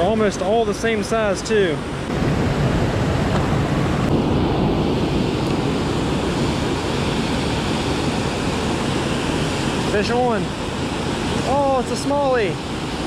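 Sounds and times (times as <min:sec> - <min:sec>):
river water rushing over dam: 0:05.3 - 0:13.0.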